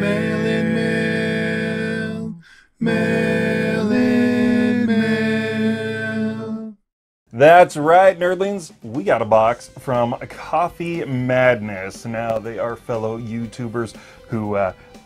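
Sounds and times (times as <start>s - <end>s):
theme music of held notes: 7.4s - 15.0s.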